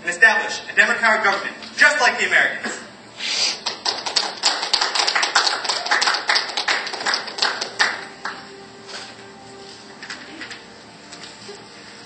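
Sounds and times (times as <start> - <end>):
crowd applauding: 3.6 - 8.4.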